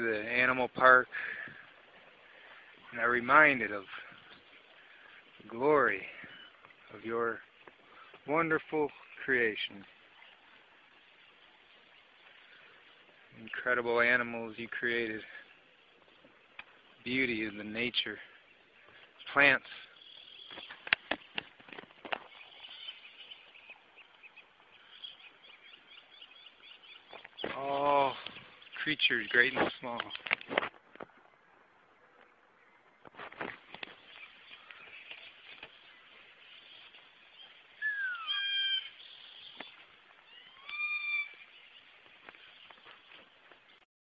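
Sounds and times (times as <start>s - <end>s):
small birds chirping: 0.0s - 43.8s
animal calling high-pitched: 37.8s - 39.4s, 40.2s - 41.5s.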